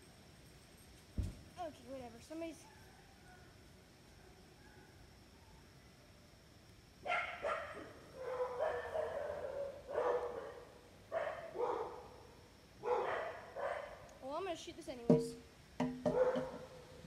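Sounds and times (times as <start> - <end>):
dog barking: 7.0 - 12.2, 12.8 - 14.1, 16.1 - 16.9.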